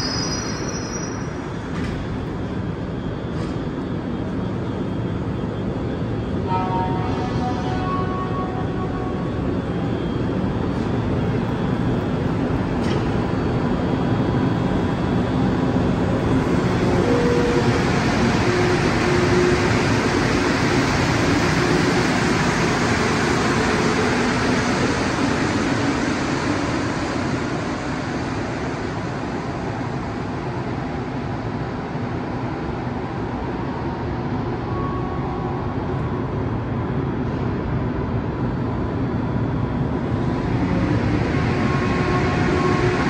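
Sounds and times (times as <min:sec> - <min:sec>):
train pulling out: 0:39.8 - 0:43.0.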